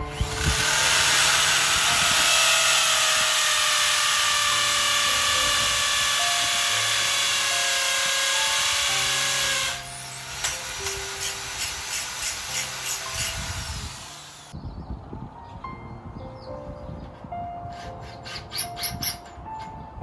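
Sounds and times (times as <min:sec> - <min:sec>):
power drill drilling into metal: 0:00.0 - 0:14.6.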